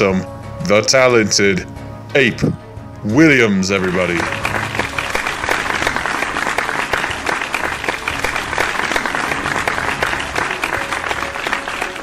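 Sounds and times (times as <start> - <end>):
crowd applause: 4.0 - 12.0.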